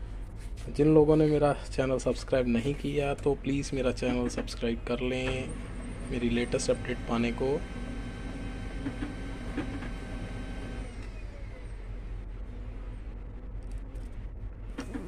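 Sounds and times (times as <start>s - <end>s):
low hum: 0.0s - 15.0s
printer motors whining: 2.7s - 13.3s.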